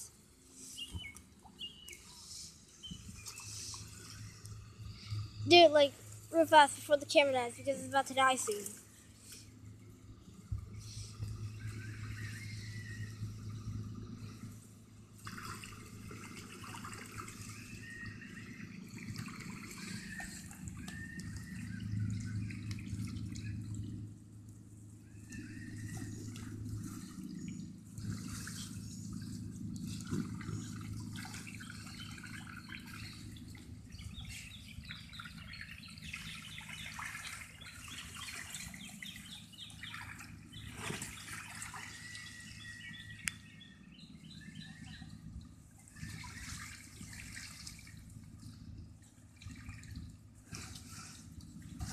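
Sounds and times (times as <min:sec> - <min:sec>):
birds chirping: 0:00.6 - 0:08.7, 0:25.0 - 0:46.4
water spilling and trickling: 0:15.2 - 0:24.0, 0:25.4 - 0:42.4, 0:45.7 - 0:51.9.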